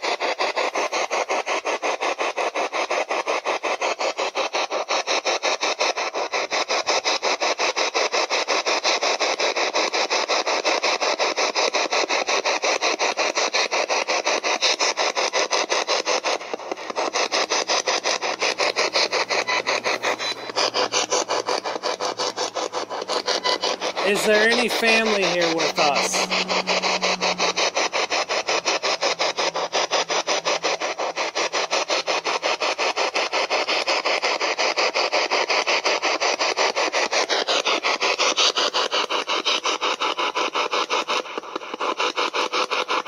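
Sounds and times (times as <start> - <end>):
radio static bursts: 16.2 - 31.0.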